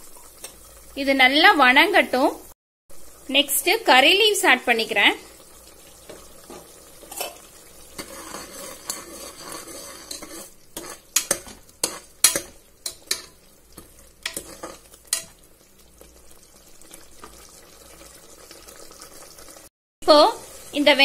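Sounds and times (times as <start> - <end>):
masala sizzling in oil: 0.0 - 21.0
metal ladle scraping a pot: 6.4 - 13.4, 14.2 - 15.3.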